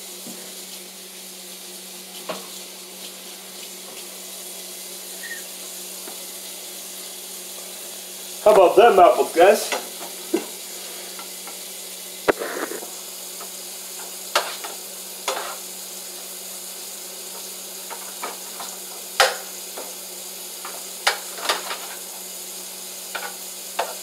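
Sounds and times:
food sizzling in a frying pan: 0:00.0 - 0:24.0
spatula clacking against pan: 0:17.9 - 0:19.9.

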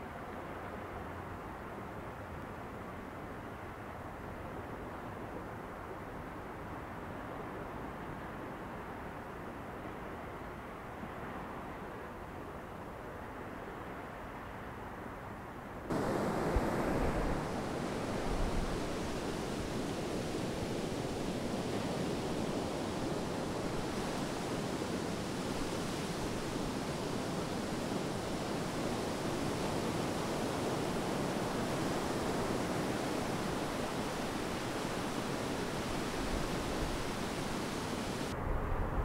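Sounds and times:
wind: 0:00.0 - 0:39.0
sea surf: 0:15.9 - 0:39.0.

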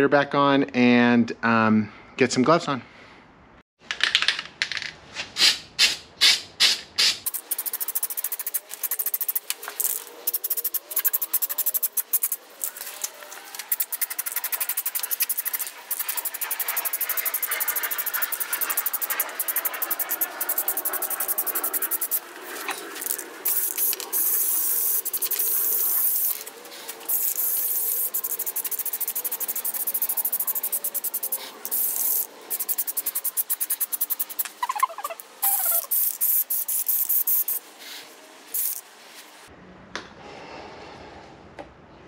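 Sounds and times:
aerosol can spraying: 0:06.6 - 0:22.2, 0:23.0 - 0:37.6, 0:38.5 - 0:38.8.

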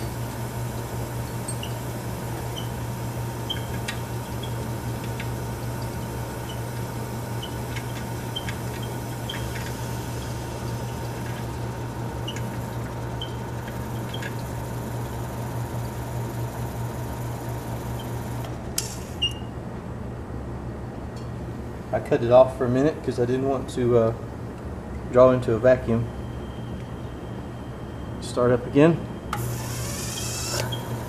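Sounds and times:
slipping drive belt chirps: 0:00.0 - 0:18.4, 0:29.2 - 0:31.0
refrigerator compressor humming: 0:00.0 - 0:31.0.

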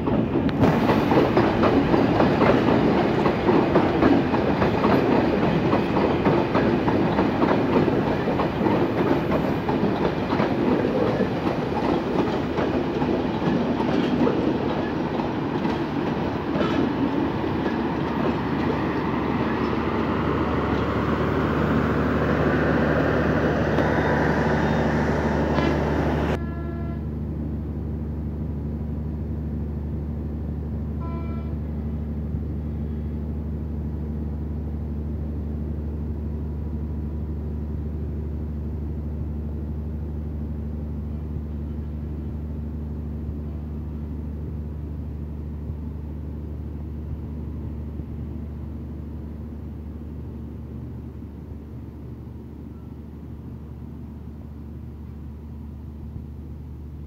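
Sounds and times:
high-pitched train toots: 0:23.8 - 0:27.1, 0:31.0 - 0:31.7.

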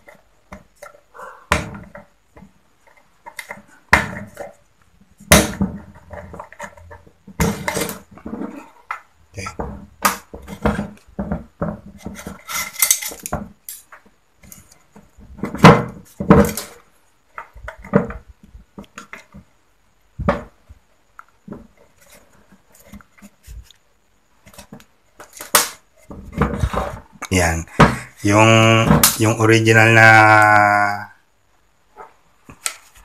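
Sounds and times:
metallic clicks and scrapes: 0:12.2 - 0:14.8.

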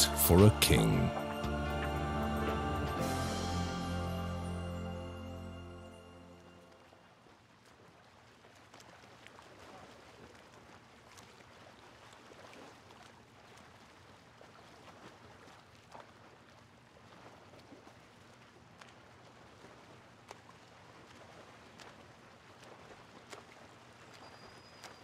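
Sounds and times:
low hum: 0:00.0 - 0:06.9.

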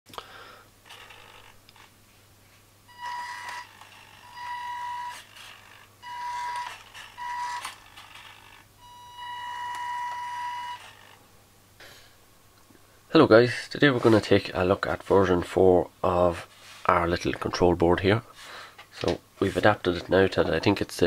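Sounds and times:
toy truck motor whining: 0:02.9 - 0:11.2.

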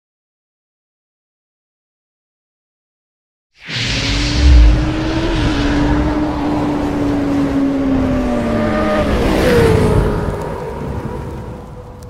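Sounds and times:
steady rushing noise: 0:03.6 - 0:08.7.

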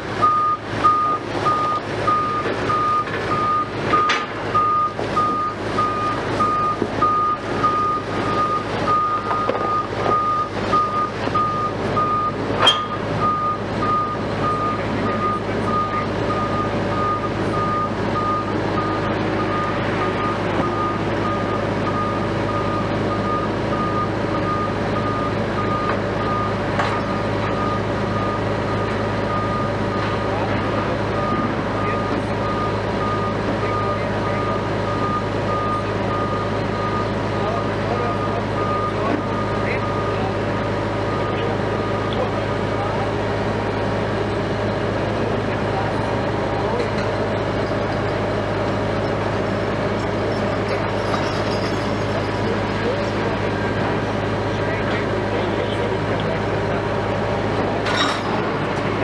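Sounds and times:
diesel engines humming: 0:00.0 - 0:59.0
reversing alarm beeping: 0:00.2 - 0:43.0.

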